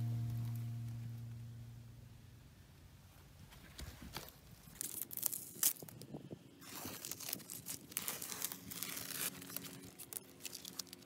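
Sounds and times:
tape and paper peeling and tearing: 0:04.1 - 0:11.0.

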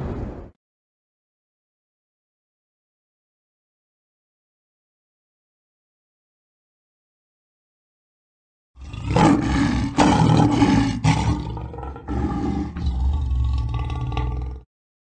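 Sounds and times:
lion roaring: 0:08.8 - 0:14.7.

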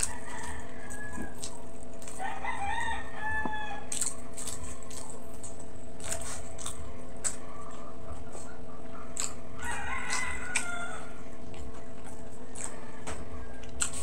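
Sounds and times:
chewing and lip-smacking: 0:00.0 - 0:03.0, 0:03.8 - 0:14.0
rooster crowing: 0:00.0 - 0:04.0, 0:09.5 - 0:11.3, 0:12.4 - 0:14.0
steady low hum: 0:00.0 - 0:14.0.

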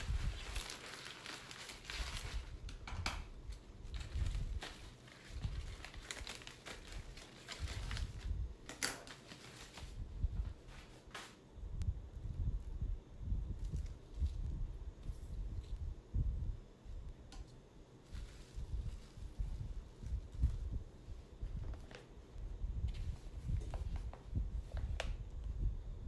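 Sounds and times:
paper and plastic crinkling: 0:00.0 - 0:11.4, 0:18.0 - 0:22.3.

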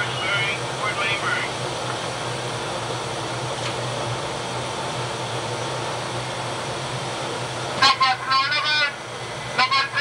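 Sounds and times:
constant low machinery hum: 0:00.0 - 0:10.0
ventilation rushing noise: 0:00.0 - 0:10.0.

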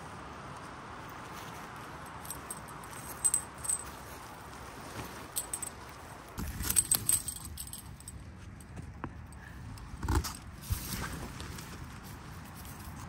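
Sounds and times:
tent fabric rustling: 0:01.2 - 0:07.8, 0:10.1 - 0:13.0
metallic clinks from tent pole: 0:02.2 - 0:04.1, 0:05.1 - 0:08.7.

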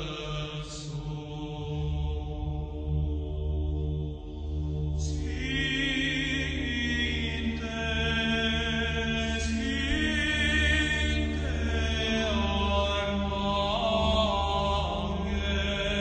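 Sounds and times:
low held vocal drone: 0:00.0 - 0:16.0
men singing chant: 0:05.0 - 0:16.0.

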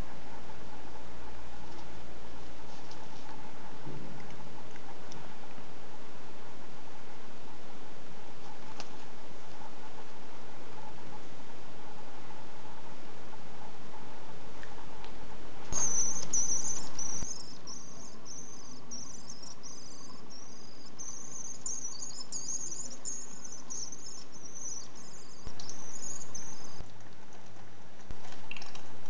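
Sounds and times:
young bird trilling screech calls: 0:15.8 - 0:26.8.

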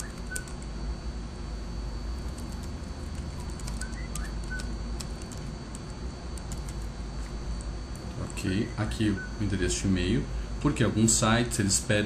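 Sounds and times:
keyboard keys clicking: 0:00.0 - 0:00.7, 0:02.3 - 0:06.9
steady low hum: 0:00.0 - 0:12.0.

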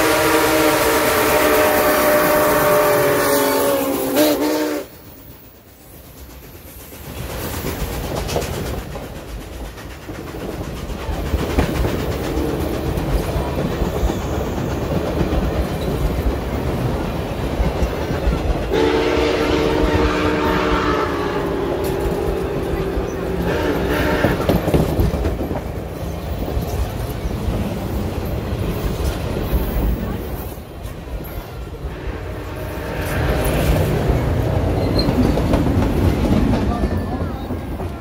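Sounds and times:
steam whistle chord: 0:00.0 - 0:04.9, 0:18.7 - 0:21.9
train wheels clattering over rail joints: 0:05.2 - 0:18.9, 0:21.8 - 0:31.8, 0:32.8 - 0:38.0.

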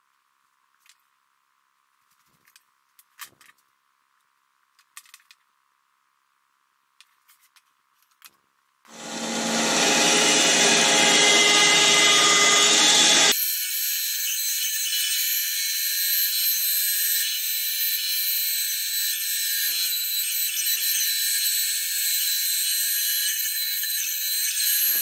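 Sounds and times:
power tool running: 0:08.9 - 0:14.0
bandsaw high-pitched whine: 0:08.9 - 0:25.0.

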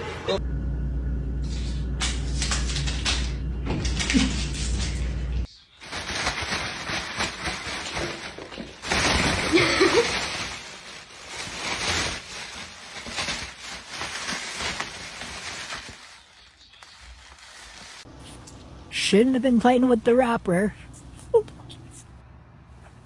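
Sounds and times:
plastic bag rustling: 0:05.8 - 0:18.1.

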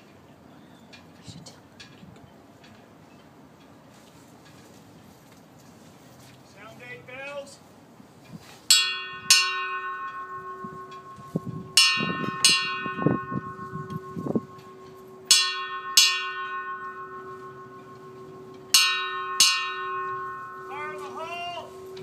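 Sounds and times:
brass bell ringing: 0:08.7 - 0:22.0.

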